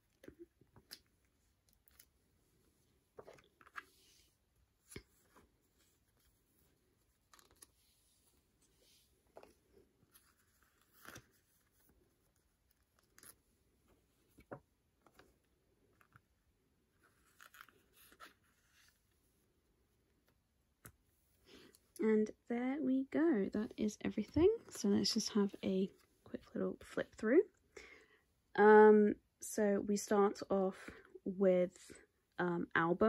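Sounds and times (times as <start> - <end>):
plastic sleeves rustling: 0.0 - 22.0.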